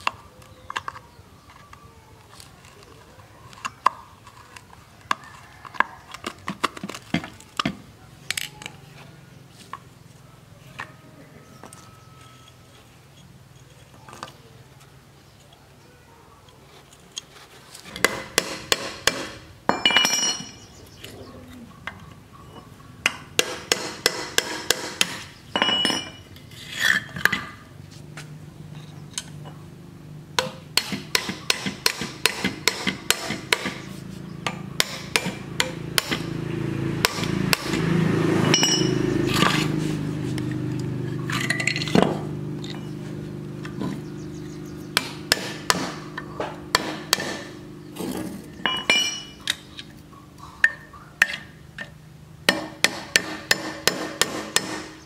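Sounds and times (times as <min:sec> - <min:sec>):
hammer tapping on metal: 0:45.0 - 0:47.5.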